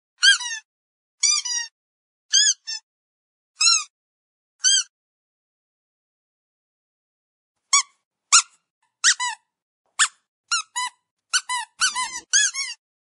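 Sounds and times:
squeaky dog toy squeaks: 0.2 - 1.7, 2.3 - 2.8, 3.6 - 3.9, 4.6 - 4.9, 7.7 - 12.8.

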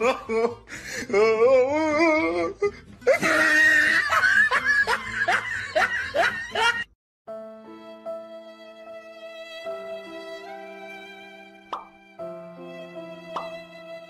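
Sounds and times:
person laughing hard: 3.1 - 6.9.

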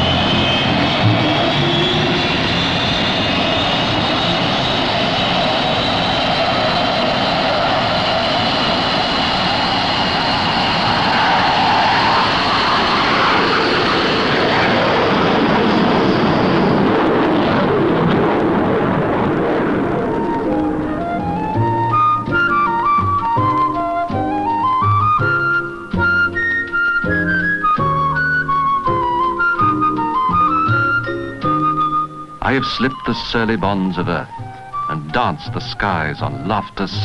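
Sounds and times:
music: 0.0 - 3.4, 19.9 - 37.0
high tone rising in pitch: 0.0 - 18.0, 18.8 - 35.3
aircraft engines running: 0.0 - 37.0.

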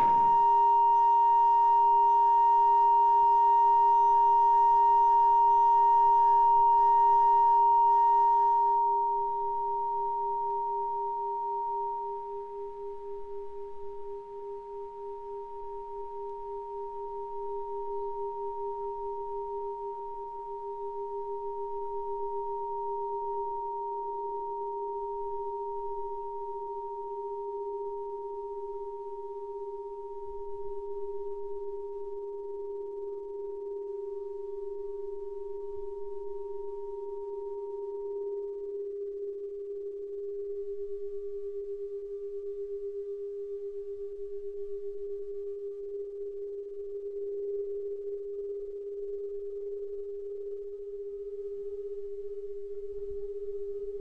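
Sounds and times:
high electronic drone tone: 0.0 - 1.0
low pulsing drone tone: 0.0 - 54.0.

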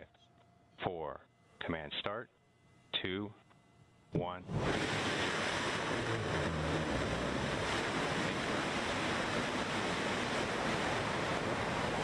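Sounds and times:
rocket engine rushing roar: 4.4 - 12.0.

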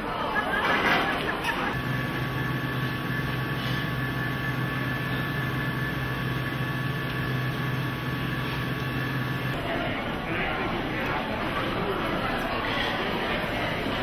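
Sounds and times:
kitchen machinery hum: 0.0 - 14.0
high whining tones: 1.5 - 9.6.

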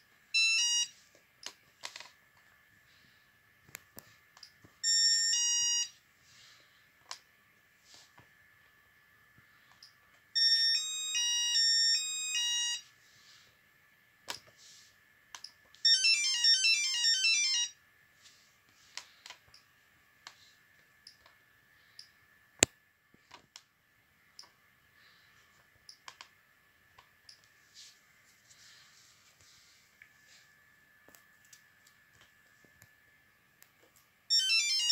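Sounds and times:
alarm keypad chime melody: 0.3 - 1.0, 4.8 - 6.0, 10.4 - 12.9, 15.8 - 17.8, 34.3 - 34.9.

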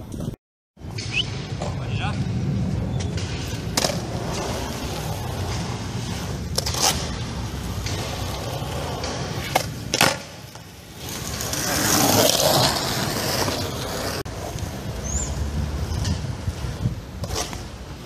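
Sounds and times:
skateboard wheels rolling on concrete: 0.0 - 18.0
skateboard clacks: 3.0 - 14.8.

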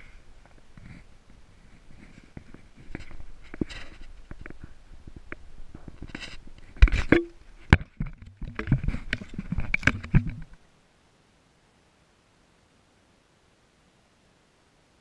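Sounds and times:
camera handling knocks and rustling: 6.0 - 10.6.

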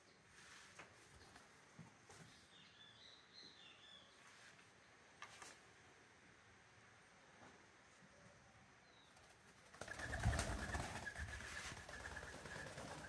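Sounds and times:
pigeon wings flapping: 9.2 - 13.0.

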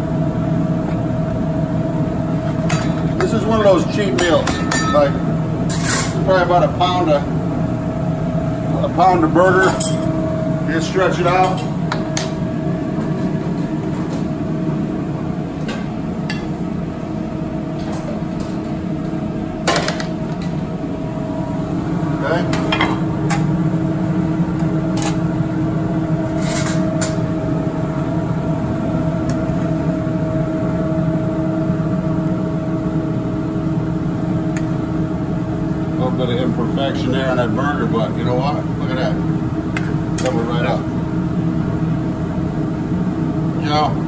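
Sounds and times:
ventilation fans humming: 0.0 - 44.0
metal spatula clinking on pans: 4.2 - 6.2.

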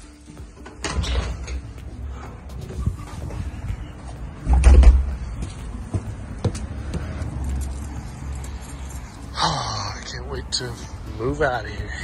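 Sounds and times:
footsteps on concrete steps: 2.6 - 8.1
door thudding shut: 4.5 - 5.1.

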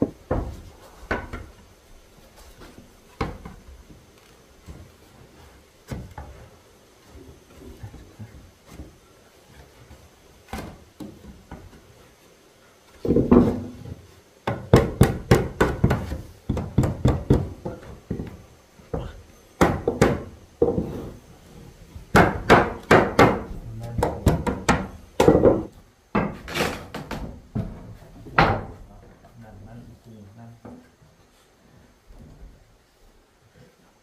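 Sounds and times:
hammer striking wood: 14.4 - 18.3, 19.0 - 20.9, 22.1 - 27.7.

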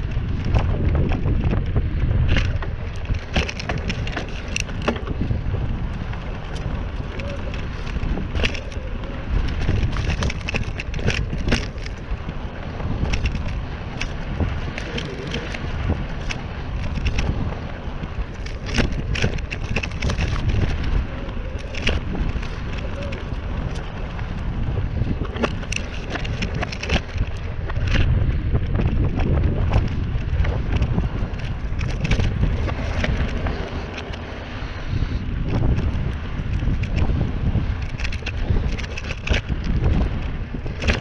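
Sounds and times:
bike clicks and rattles: 0.0 - 41.0
wind buffeting microphone: 0.0 - 41.0.

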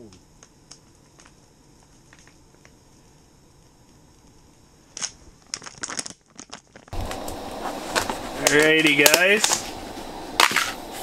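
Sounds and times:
plastic pouch crinkling: 4.9 - 7.0.

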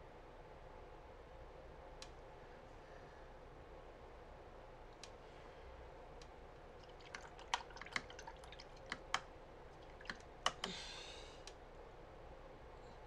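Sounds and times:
clicks and taps on hard surface: 8.8 - 9.3, 10.0 - 10.8.

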